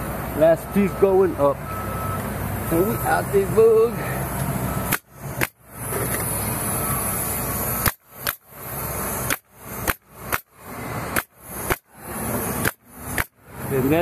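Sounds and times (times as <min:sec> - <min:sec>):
nail gun firing: 0:04.9 - 0:05.6, 0:07.8 - 0:08.5, 0:09.2 - 0:13.4.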